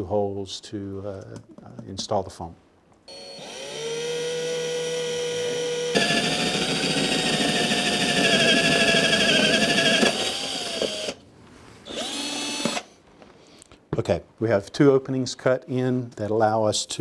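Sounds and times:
cordless drill whining: 0:03.1 - 0:11.2, 0:11.8 - 0:13.0
drill bit grinding through wood: 0:03.1 - 0:11.2, 0:11.9 - 0:12.9.

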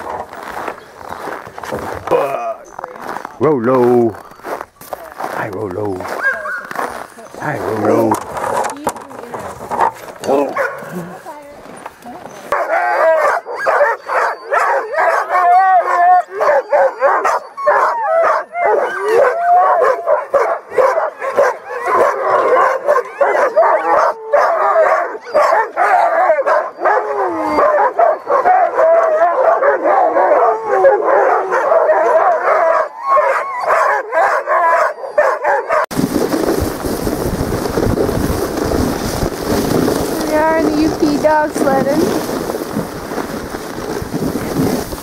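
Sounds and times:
sled dogs barking and howling: 0:02.8 - 0:45.0
rushing wind: 0:35.9 - 0:45.0.

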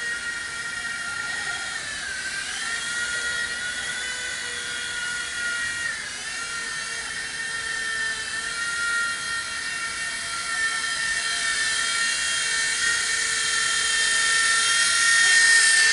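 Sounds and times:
toy helicopter motors whining: 0:00.0 - 0:15.9.

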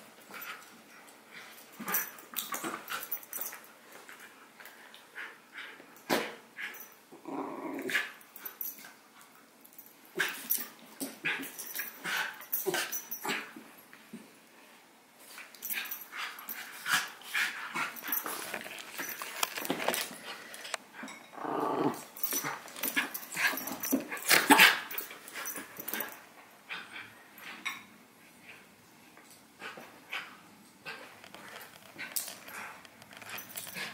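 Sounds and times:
dogs scuffling and mouthing: 0:00.1 - 0:06.9, 0:15.2 - 0:21.3, 0:21.9 - 0:27.9, 0:29.2 - 0:33.9
dog growling: 0:07.2 - 0:08.0, 0:21.3 - 0:22.1.

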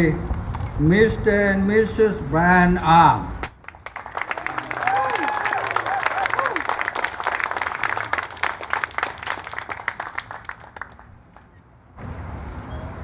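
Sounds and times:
people applauding: 0:03.4 - 0:11.5.

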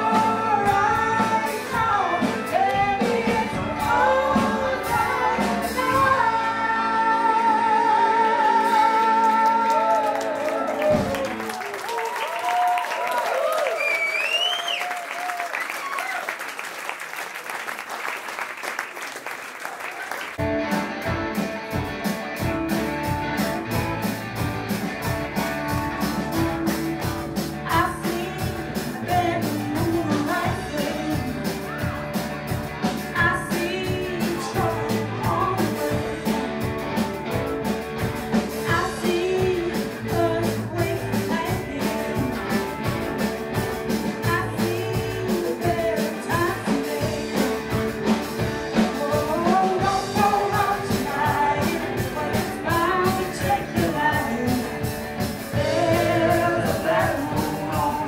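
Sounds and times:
woman singing: 0:00.0 - 0:11.1, 0:27.6 - 0:32.0, 0:32.9 - 0:36.6, 0:38.6 - 0:43.0, 0:44.1 - 0:58.0
rock band playing: 0:00.0 - 0:11.9, 0:20.2 - 0:58.0
applause: 0:09.2 - 0:20.5.

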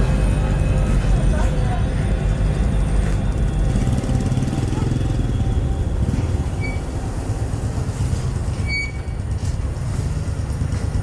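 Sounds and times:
motorcycle engine running: 0:02.4 - 0:06.0.

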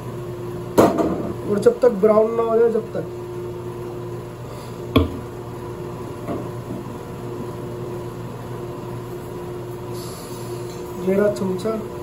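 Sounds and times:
steady machine hum: 0:00.0 - 0:12.0.

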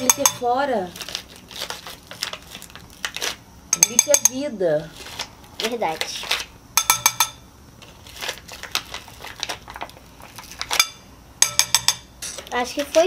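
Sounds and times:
metal spoon tapping glass bowl: 0:00.0 - 0:00.5, 0:03.7 - 0:04.4, 0:06.8 - 0:07.4, 0:10.8 - 0:12.1.

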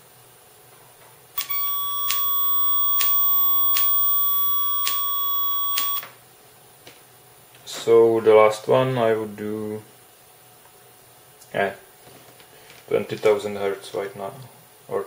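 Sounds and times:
faint ticks: 0:01.4 - 0:06.0
lower tone: 0:01.4 - 0:06.0
steady high test tone: 0:01.4 - 0:06.0.

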